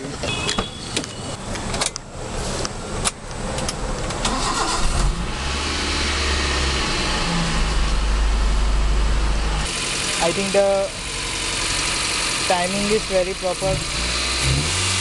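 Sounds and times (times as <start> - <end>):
car engine cranking and idling: 1.5 - 15.0.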